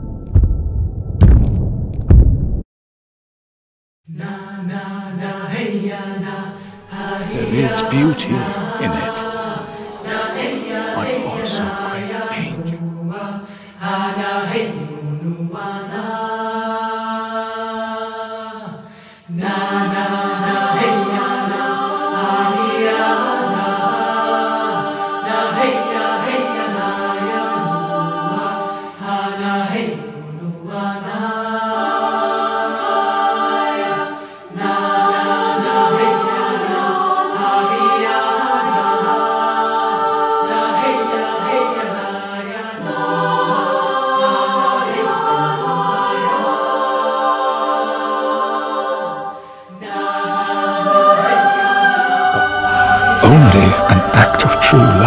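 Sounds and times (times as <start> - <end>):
choir singing held notes: 5.8 - 12.8, 30.7 - 55.0.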